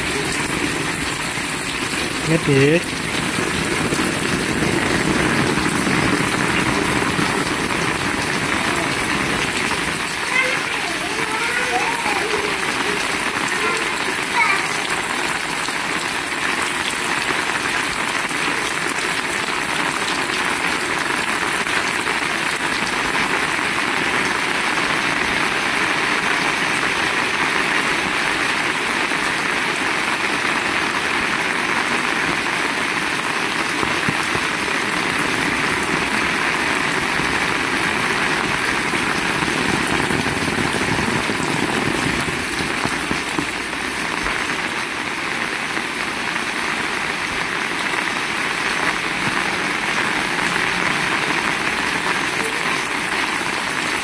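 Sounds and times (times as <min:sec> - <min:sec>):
heavy rain pouring: 0:00.0 - 0:54.0.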